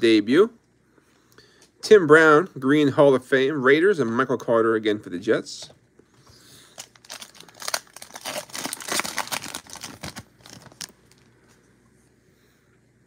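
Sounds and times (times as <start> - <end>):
foil wrapper tearing and crinkling: 6.7 - 11.3.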